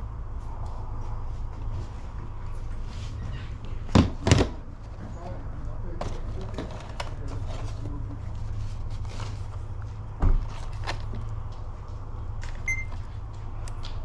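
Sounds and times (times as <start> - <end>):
steady low rumble: 0.0 - 14.0
barcode scanner beep: 12.7 - 13.0.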